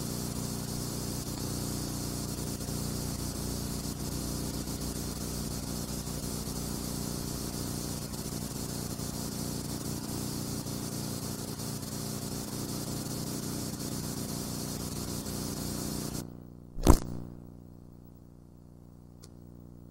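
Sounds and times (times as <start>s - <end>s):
film soundtrack hiss and hum: 0.0s - 17.3s
sharp loud click: 16.8s - 17.3s.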